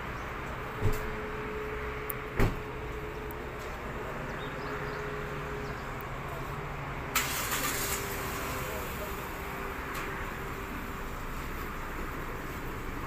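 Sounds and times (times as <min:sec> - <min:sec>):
car door shutting: 0:02.4 - 0:02.7.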